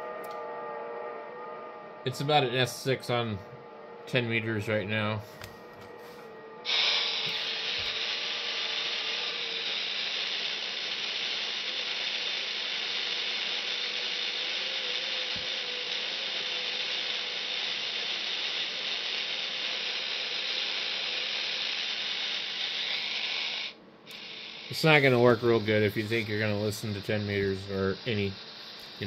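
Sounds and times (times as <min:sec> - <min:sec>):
faint wavering whistle: 0:00.0 - 0:29.0
radio static hiss: 0:06.0 - 0:29.0.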